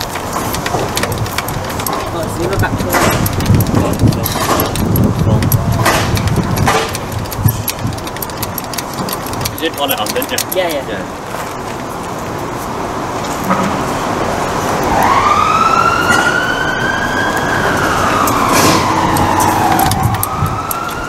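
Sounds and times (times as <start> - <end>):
siren wailing: 14.6 - 21.0.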